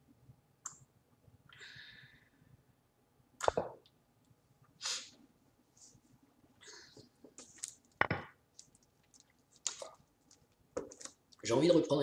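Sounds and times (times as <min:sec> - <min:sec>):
soft breaths or sniffs: 0:04.8 - 0:06.0.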